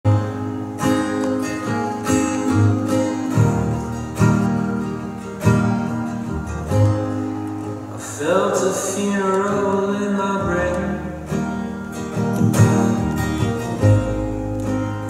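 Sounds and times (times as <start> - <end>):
acoustic guitar chords: 0.0 - 15.0
upright double bass: 10.4 - 15.0.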